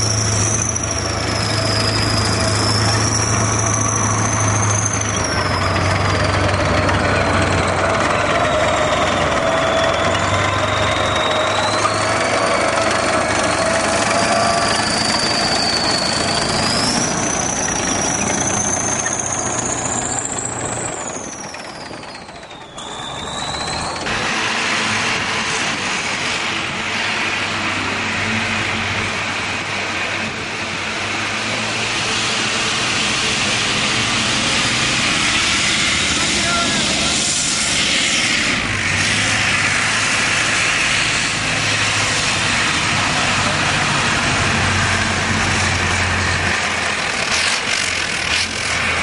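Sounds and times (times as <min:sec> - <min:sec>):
tracks clattering: 0:00.0 - 0:31.5
tracked vehicle engine running: 0:00.0 - 0:49.0.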